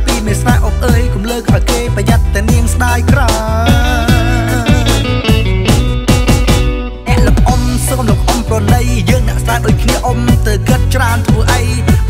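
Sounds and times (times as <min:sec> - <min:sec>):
background music with steady beat: 0:00.0 - 0:12.0
deep drum hits: 0:03.1 - 0:08.8.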